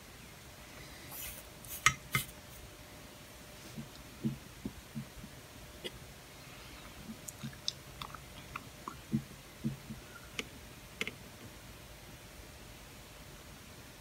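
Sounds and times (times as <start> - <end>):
soft low taps: 3.8 - 5.4.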